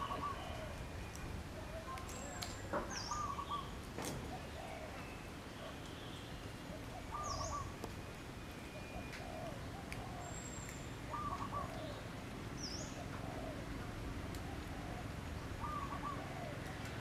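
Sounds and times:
bird call phrase: 0:00.0 - 0:00.8, 0:07.0 - 0:07.7
soft bird chirps: 0:00.0 - 0:03.8, 0:04.4 - 0:07.8.

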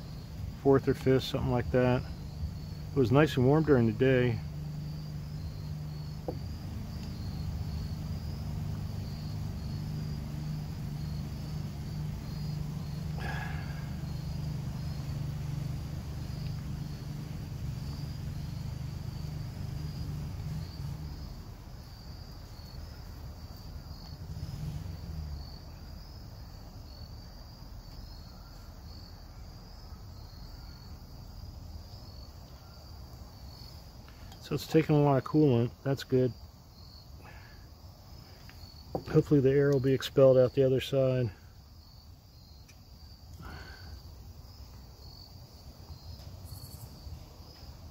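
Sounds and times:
low steady hum: 0:00.0 - 0:26.0
insects chirping: 0:00.0 - 0:47.9.

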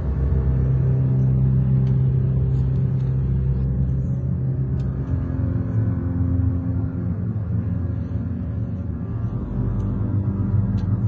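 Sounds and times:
dark suspenseful drone music: 0:00.0 - 0:11.0.

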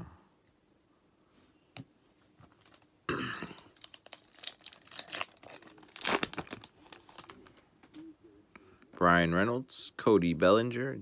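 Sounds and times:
plastic wrapper tearing and crinkling: 0:03.6 - 0:07.6.

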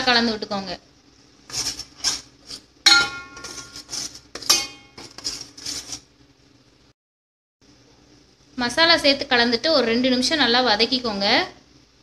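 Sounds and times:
spoon scraping a steel pan: 0:01.5 - 0:06.1.

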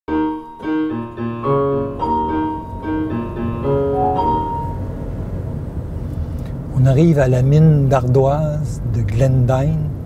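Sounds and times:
slow piano melody: 0:00.1 - 0:06.0.

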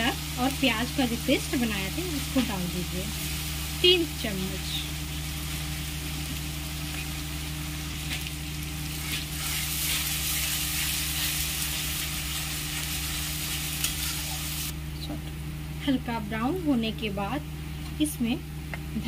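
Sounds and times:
paste sizzling in hot oil: 0:00.0 - 0:14.7.

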